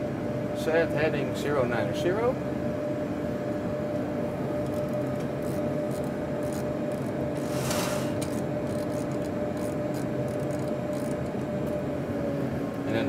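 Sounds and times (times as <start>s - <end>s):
cockpit hum: 0.0s - 13.0s
airflow hiss: 7.4s - 8.2s.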